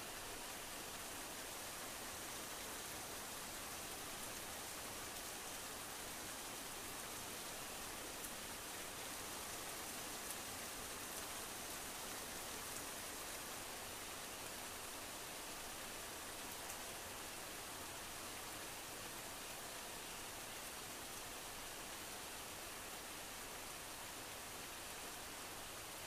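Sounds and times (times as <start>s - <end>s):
faint ticks: 16.5s - 16.9s.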